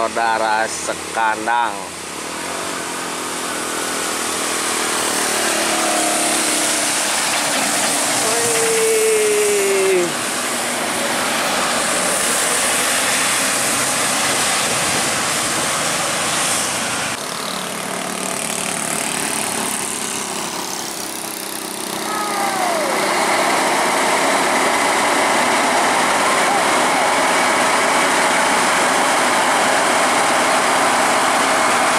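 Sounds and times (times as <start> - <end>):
trucks driving past: 0.0 - 31.9
tyre hiss on wet road: 2.2 - 17.2
motorcycles driving past: 2.6 - 14.4, 17.1 - 25.2.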